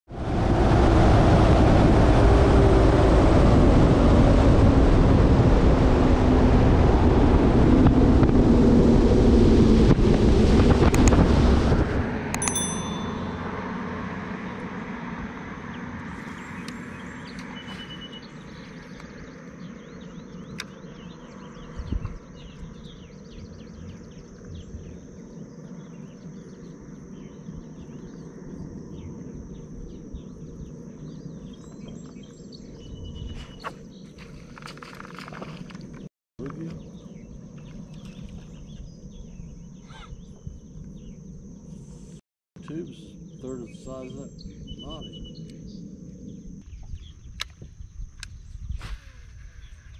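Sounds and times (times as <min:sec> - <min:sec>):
wind and water rushing: 0:00.1 - 0:13.7
high insect drone: 0:12.2 - 0:49.9.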